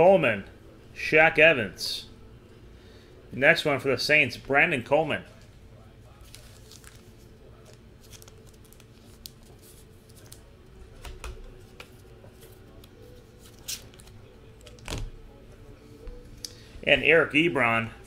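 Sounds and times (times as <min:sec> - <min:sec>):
faint steady hum: 0:00.0 - 0:18.0
cards and packaging rustling: 0:06.2 - 0:15.0.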